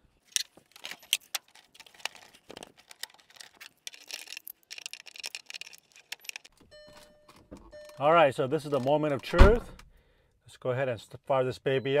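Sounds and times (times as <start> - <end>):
hand tools clicking and rattling: 0.8 - 6.6.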